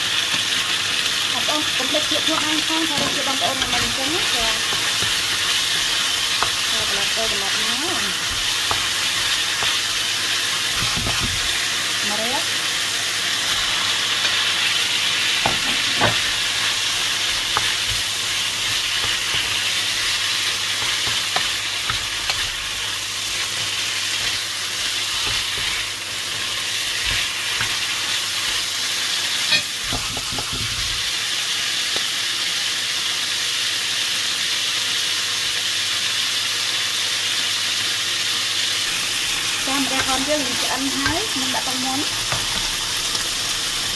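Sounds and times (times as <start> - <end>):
food sizzling in a frying pan: 0.0 - 43.9
wooden spatula knocking on pan: 10.8 - 11.5, 15.4 - 16.3, 17.3 - 22.6, 23.6 - 27.9, 29.5 - 30.8.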